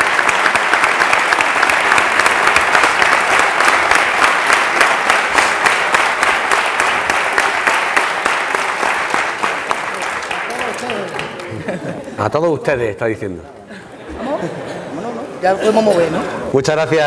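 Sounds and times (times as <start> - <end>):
audience clapping: 0.0 - 12.2.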